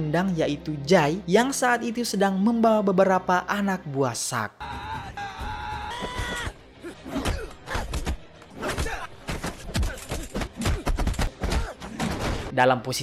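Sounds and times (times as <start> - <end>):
man shouting: 4.6 - 6.5
fight thumps and blows: 5.4 - 12.5.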